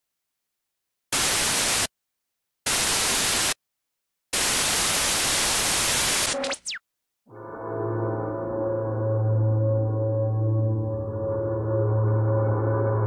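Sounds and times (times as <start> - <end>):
static hiss bursts: 1.2 - 1.9, 2.7 - 3.6, 4.4 - 6.7.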